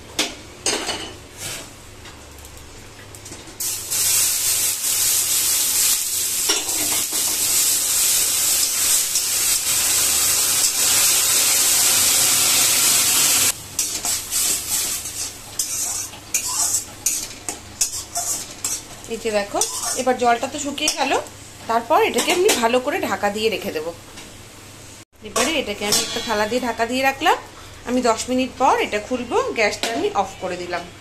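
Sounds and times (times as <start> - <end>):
water sizzling in hot pan: 3.6 - 17.2
metal spatula scraping pan: 15.1 - 18.9.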